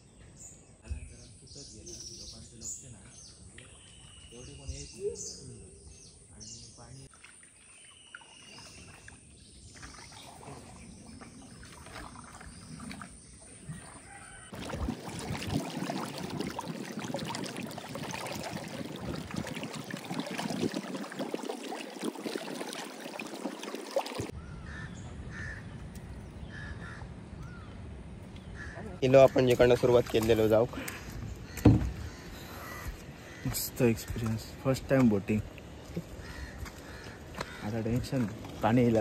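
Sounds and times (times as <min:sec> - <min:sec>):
crows cawing: 0:24.5 - 0:25.6, 0:26.5 - 0:27.6, 0:30.9 - 0:34.2, 0:36.1 - 0:37.8.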